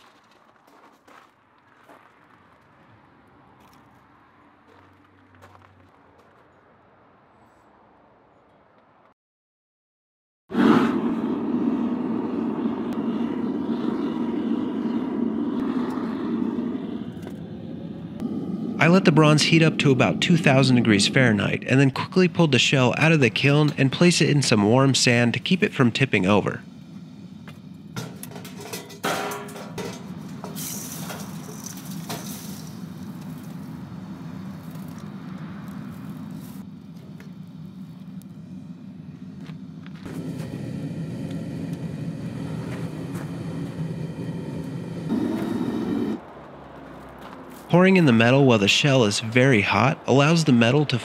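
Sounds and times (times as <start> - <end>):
gas burner rushing: 10.5 - 46.4
steady low rumble: 10.6 - 46.3
crucible and tongs clinking: 28.0 - 32.8.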